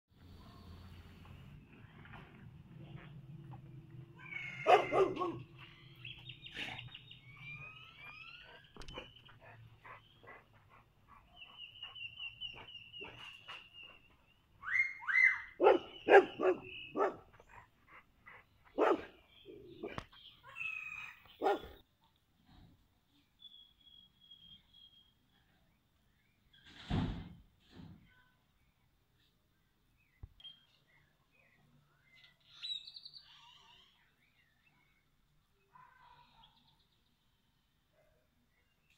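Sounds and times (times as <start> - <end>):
birds chirping and trilling: 4.0 - 21.8, 30.0 - 37.8
dog barking: 4.6 - 5.5, 15.6 - 17.3, 18.7 - 20.0, 21.4 - 21.8, 35.7 - 36.6.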